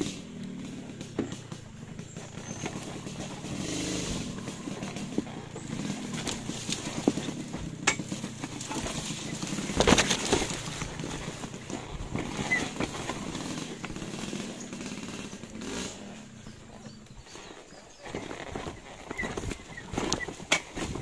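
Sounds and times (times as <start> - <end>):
vehicle rumbling: 0.0 - 21.0
knocks and rattles: 0.6 - 15.8.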